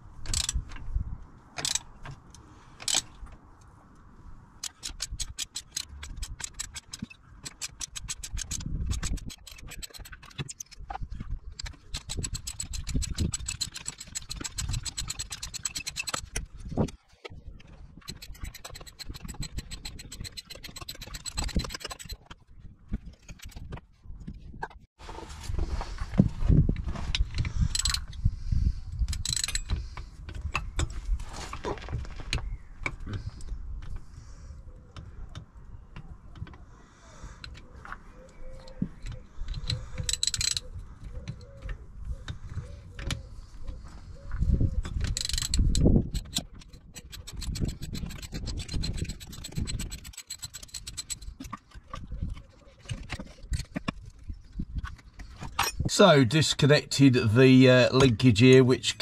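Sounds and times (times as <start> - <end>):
rapid ratchet clicking: 4.6 - 10.6, 11.6 - 16.3, 18.0 - 22.2, 45.2 - 51.4
metal tools clinking and knocking: 11.6 - 17.0, 17.6 - 22.4, 38.6 - 41.4, 44.9 - 54.3.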